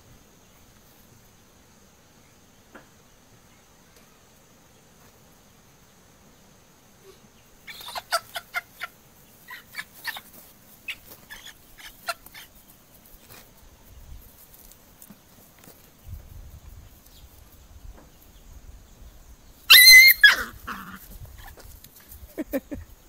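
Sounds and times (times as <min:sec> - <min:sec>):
hen squawking: 0:07.6 - 0:12.5, 0:19.7 - 0:21.5.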